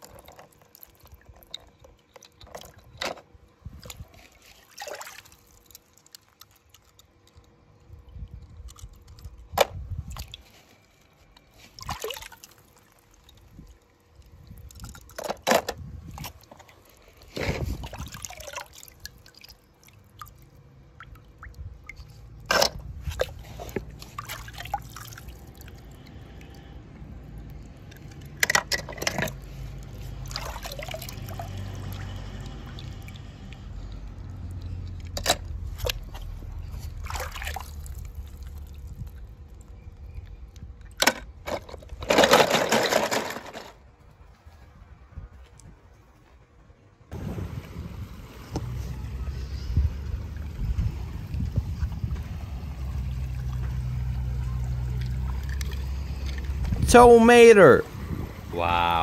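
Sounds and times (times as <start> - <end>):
water splashing and dripping: 0.0 - 3.0, 3.7 - 9.5, 11.7 - 15.2, 16.1 - 39.8, 49.9 - 56.8.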